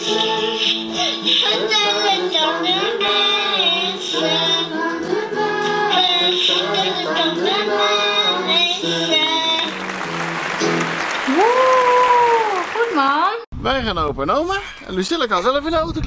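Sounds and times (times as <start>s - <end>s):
child singing into toy microphone: 0.0s - 9.7s
clapping: 9.6s - 13.4s.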